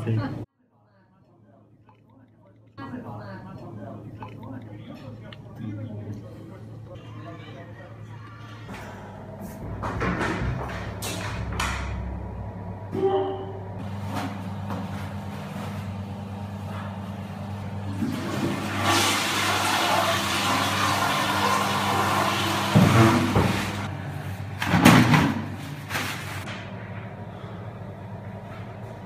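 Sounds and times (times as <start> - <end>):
steady low hum: 1.4 - 18.1, 25.4 - 29.0
toilet flushing: 17.6 - 23.9.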